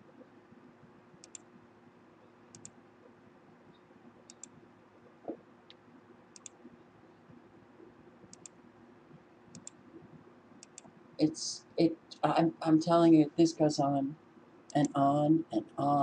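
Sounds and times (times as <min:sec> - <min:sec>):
low steady hum: 0:00.0 - 0:16.0
computer mouse clicks: 0:01.2 - 0:01.5, 0:02.5 - 0:02.8, 0:03.7 - 0:04.6, 0:05.2 - 0:06.7, 0:08.2 - 0:08.6, 0:09.5 - 0:11.0.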